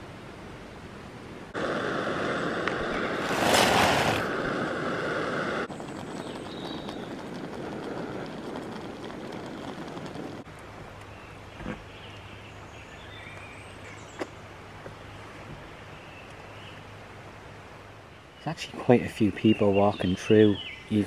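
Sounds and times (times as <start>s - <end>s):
steady rushing noise: 1.4s - 11.0s.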